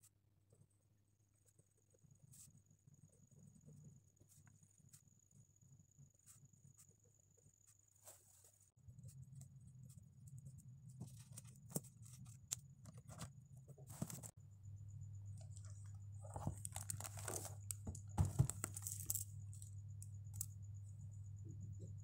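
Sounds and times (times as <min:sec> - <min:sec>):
steady low hum: 0:00.4 - 0:22.0
paper rustling and scraping: 0:11.0 - 0:14.3, 0:15.5 - 0:19.2
objects knocking on desk: 0:17.8 - 0:18.6.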